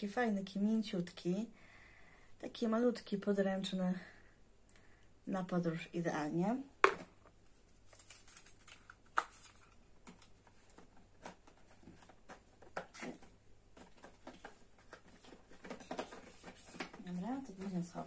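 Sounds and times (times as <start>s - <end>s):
packaging clicks and rustles: 7.9s - 18.0s.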